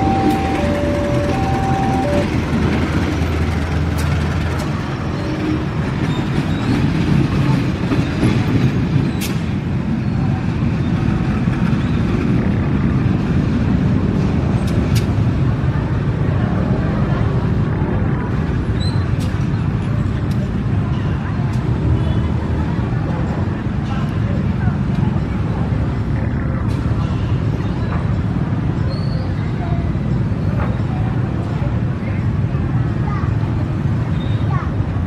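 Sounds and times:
level crossing warning tones: 0:00.0 - 0:02.8
diesel locomotive engine running: 0:00.0 - 0:28.8.

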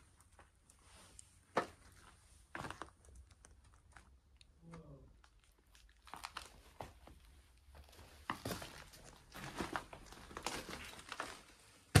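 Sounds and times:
footsteps on debris and grit: 0:01.5 - 0:04.1, 0:06.1 - 0:12.0.

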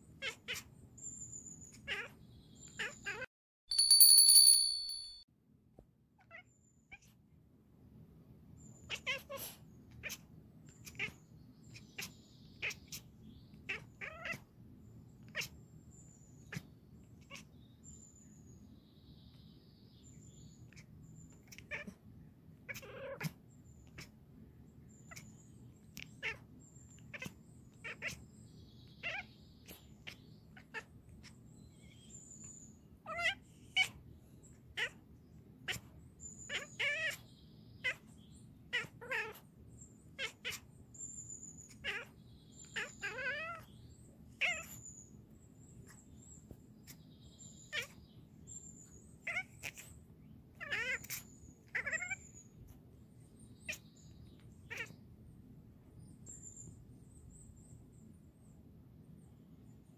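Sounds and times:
cat chattering: 0:00.2 - 0:00.7, 0:01.7 - 0:02.1, 0:08.9 - 0:14.5, 0:15.2 - 0:15.6, 0:16.4 - 0:17.6, 0:20.7 - 0:21.9, 0:22.7 - 0:24.1, 0:25.0 - 0:28.2, 0:28.9 - 0:32.0, 0:33.1 - 0:34.0, 0:34.7 - 0:35.0, 0:35.6 - 0:38.1, 0:38.7 - 0:39.4, 0:40.2 - 0:40.6, 0:41.7 - 0:43.7, 0:44.4 - 0:44.9, 0:47.6 - 0:48.0, 0:49.2 - 0:50.0, 0:50.6 - 0:52.5, 0:53.6 - 0:55.0.

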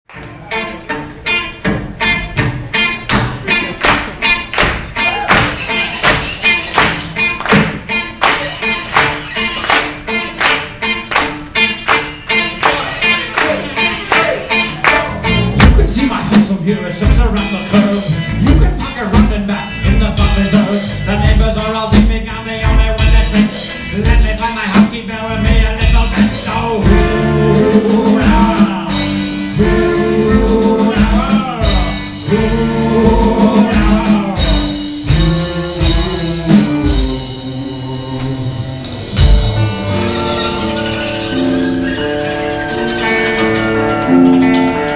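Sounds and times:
live band playing: 0:00.1 - 0:44.9
male lead vocal: 0:12.6 - 0:39.2
sustained string and guitar notes: 0:33.7 - 0:44.9.

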